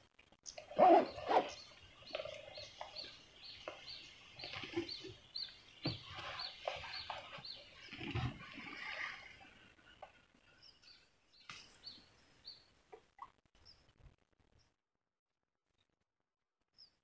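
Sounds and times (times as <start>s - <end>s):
bird chirping: 0.4s - 8.6s, 9.9s - 12.7s.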